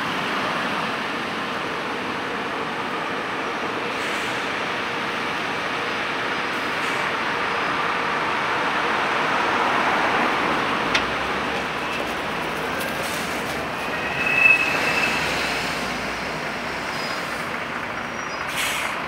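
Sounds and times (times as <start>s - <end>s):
tram rolling on rails: 0.0s - 19.0s
wheel squeal: 10.9s - 18.4s.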